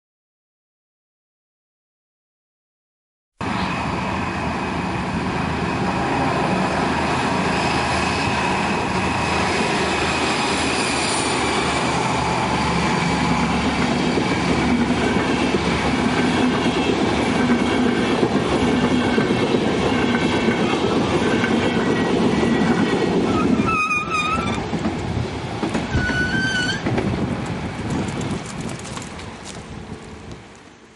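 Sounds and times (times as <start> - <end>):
diesel train rumbling past: 3.4 - 30.9
wavering high squeal: 23.3 - 24.6, 25.9 - 26.8.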